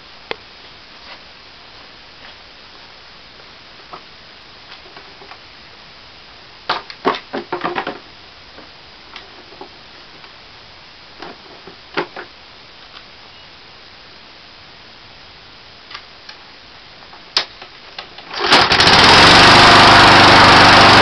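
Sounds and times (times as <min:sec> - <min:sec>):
steady background hiss: 0:00.0 - 0:18.6
mower knocks: 0:06.7 - 0:08.0.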